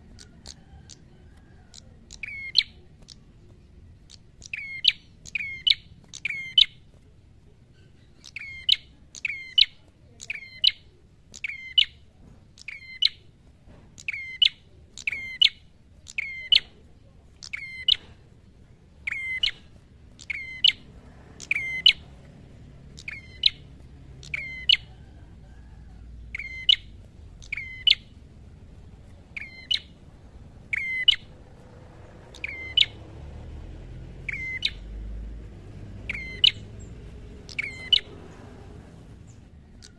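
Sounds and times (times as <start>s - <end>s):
bird chirping sharply: 1.7s - 3.3s, 4.0s - 6.8s, 7.8s - 12.0s, 12.6s - 13.3s, 14.0s - 16.8s, 17.4s - 18.2s, 19.0s - 22.1s, 22.9s - 25.0s, 26.3s - 28.2s, 29.2s - 30.0s, 30.6s - 31.3s, 32.2s - 35.1s, 35.7s - 38.6s.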